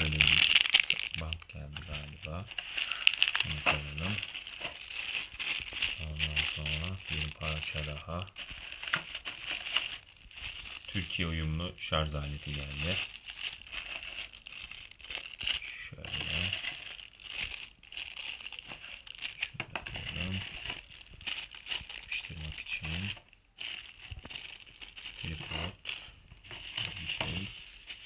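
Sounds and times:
plastic bags crinkling: 0:00.0 - 0:28.0.

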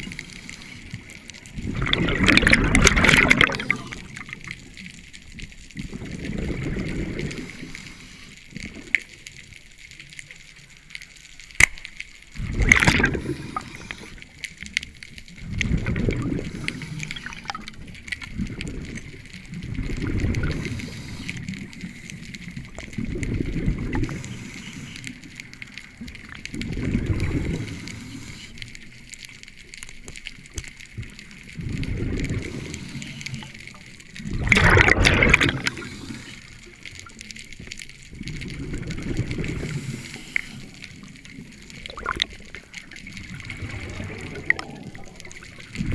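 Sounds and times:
diver exhaling bubbles underwater: 0:01.6 - 0:04.3, 0:12.4 - 0:14.1, 0:15.4 - 0:17.7, 0:19.7 - 0:20.7, 0:34.2 - 0:36.2, 0:41.7 - 0:42.6, 0:43.2 - 0:45.9.

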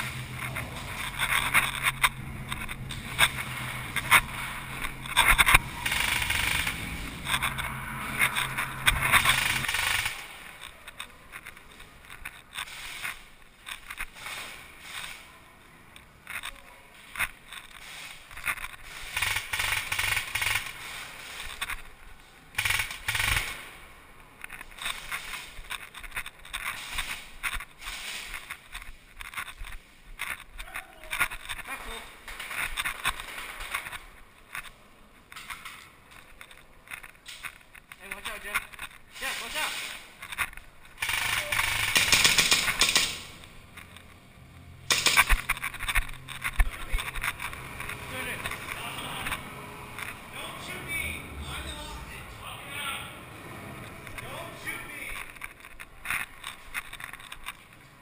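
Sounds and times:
scuffing and movement: 0:00.0 - 0:05.7
steady low hum: 0:00.0 - 0:12.5
airsoft gun fire bursts: 0:05.8 - 0:06.9, 0:09.2 - 0:10.4, 0:18.8 - 0:21.2, 0:22.5 - 0:23.8, 0:41.0 - 0:43.3, 0:44.9 - 0:45.4.

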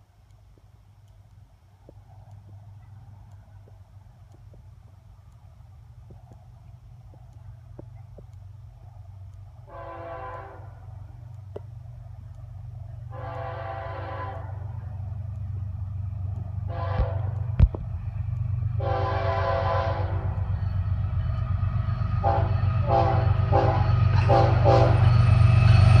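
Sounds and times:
locomotive engine rumble: 0:00.0 - 0:26.0
train horn blasts: 0:09.6 - 0:11.0, 0:13.1 - 0:14.8, 0:16.6 - 0:17.6, 0:18.8 - 0:20.6, 0:22.2 - 0:26.0.

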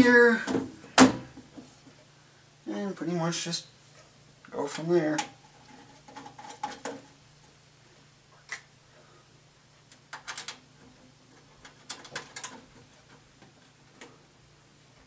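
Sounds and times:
metal panel clicking and scraping: 0:10.1 - 0:10.6, 0:11.4 - 0:13.6.

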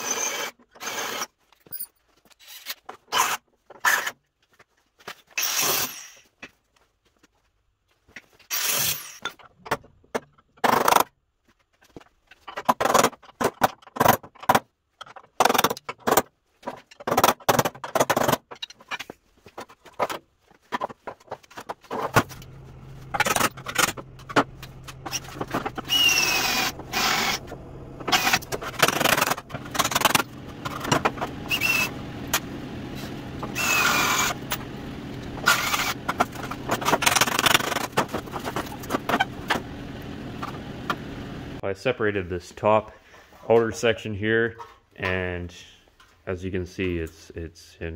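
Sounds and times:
steady hum: 0:22.0 - 0:41.6
sheet steel clanking: 0:22.1 - 0:41.1
metal squeals: 0:22.3 - 0:32.4
power tool whirring on steel: 0:22.4 - 0:30.4, 0:31.2 - 0:32.6, 0:33.2 - 0:36.1.

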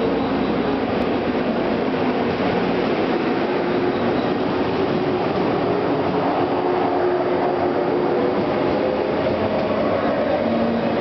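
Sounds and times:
electric train accelerating: 0:00.0 - 0:11.0.

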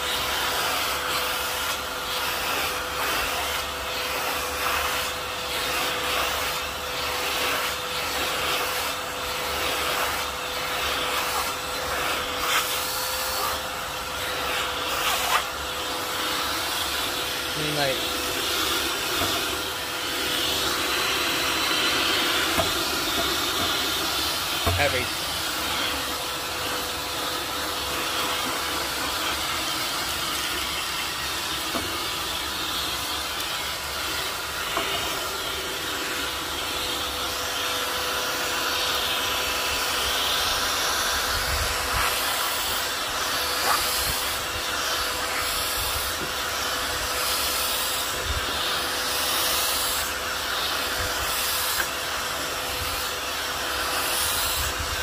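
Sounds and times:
vacuum cleaner running: 0:00.0 - 0:55.0.

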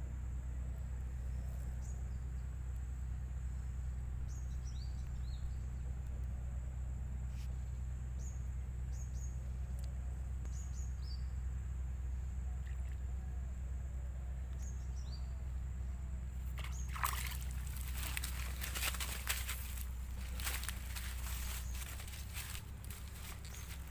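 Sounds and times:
steady low hum: 0:00.0 - 0:23.9
water splashing: 0:16.6 - 0:19.8.

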